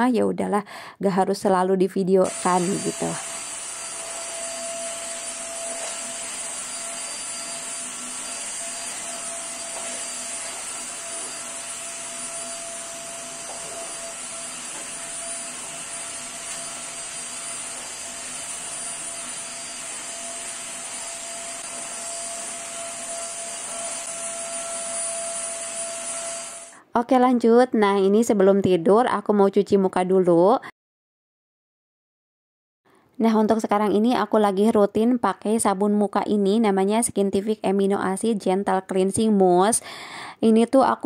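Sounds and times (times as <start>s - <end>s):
vacuum cleaner running: 2.2s - 26.8s.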